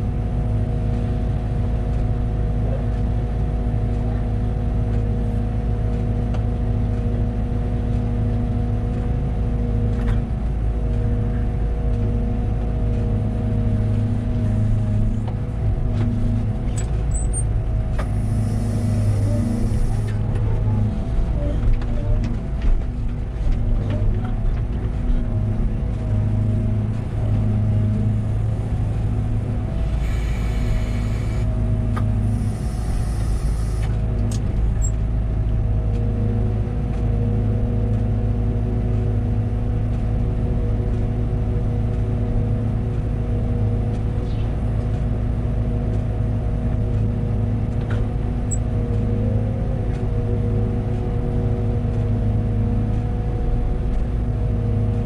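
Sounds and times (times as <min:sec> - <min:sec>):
diesel engine running: 0:00.0 - 0:55.0
short hissing bursts: 0:32.3 - 0:33.8.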